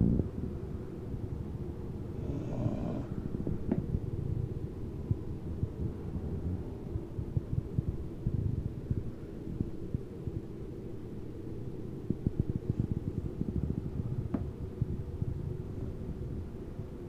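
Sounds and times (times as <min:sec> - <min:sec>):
dog snoring: 0:02.2 - 0:03.2.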